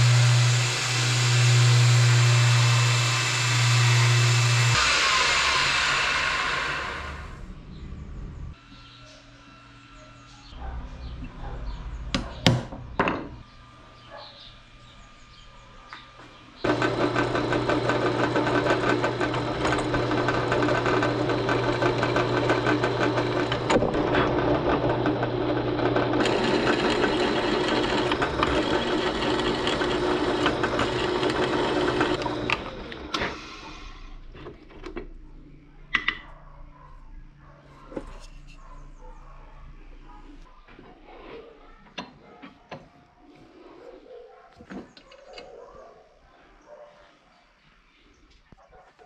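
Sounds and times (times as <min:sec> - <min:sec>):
power tool on metal: 0:00.0 - 0:07.4, 0:16.6 - 0:33.9.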